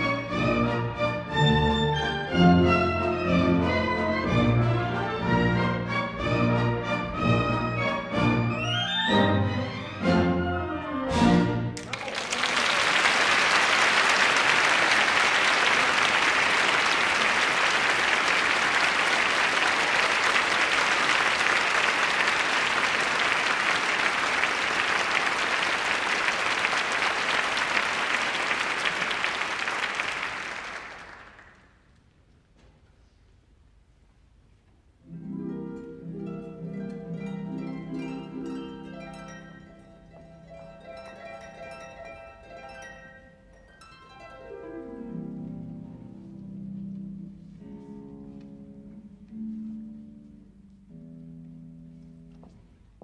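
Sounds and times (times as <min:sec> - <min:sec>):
audience applauding: 0:11.8 - 0:31.8.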